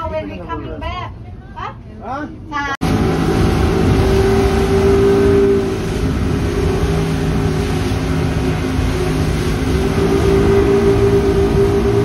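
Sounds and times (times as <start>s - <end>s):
speedboat motors droning: 0.0s - 12.0s
churning water: 2.7s - 12.0s
wind rushing: 2.8s - 12.0s.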